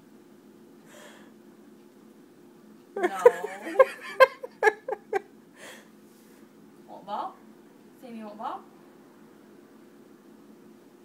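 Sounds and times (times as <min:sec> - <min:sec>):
woman laughing: 0:03.0 - 0:05.3.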